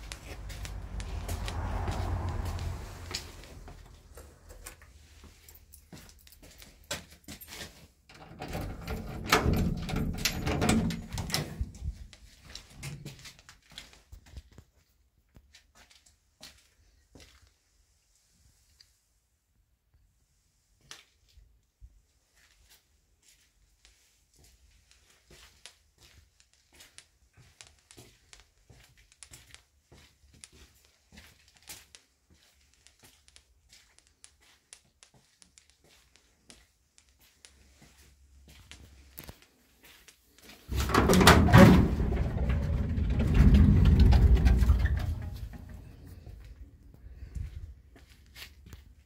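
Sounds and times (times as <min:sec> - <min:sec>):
footsteps on tiled floor: 0:00.0 - 0:08.0, 0:11.9 - 0:17.6, 0:22.2 - 0:40.7, 0:45.6 - 0:49.0
metal door scraping and rattling: 0:08.1 - 0:12.0, 0:40.7 - 0:46.4.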